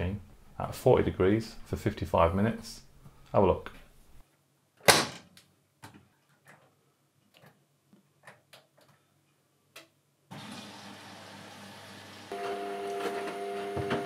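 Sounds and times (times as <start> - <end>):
water filling washing machine: 10.3 - 14.0.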